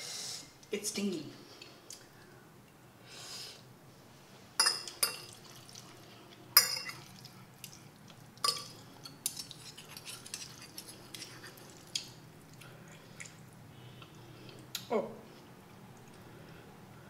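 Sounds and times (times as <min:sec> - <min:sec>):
cutlery clinking on ceramic plate: 0:04.6 - 0:05.3, 0:06.6 - 0:07.1, 0:08.4 - 0:11.3.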